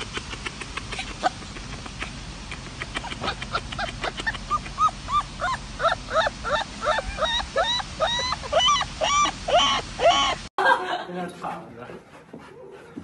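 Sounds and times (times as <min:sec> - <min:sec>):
puppy yelping: 0:03.0 - 0:10.4.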